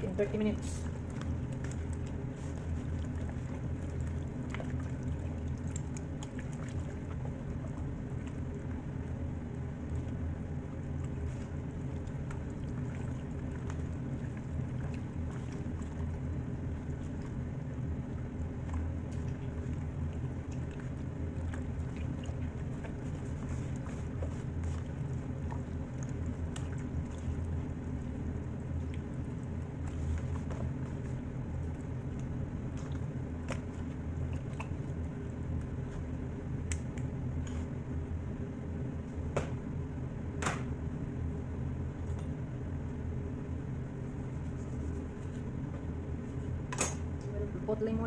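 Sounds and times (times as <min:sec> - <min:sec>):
low hum: 0:00.0 - 0:48.0
wet squishes of hands on chicken: 0:00.7 - 0:37.8.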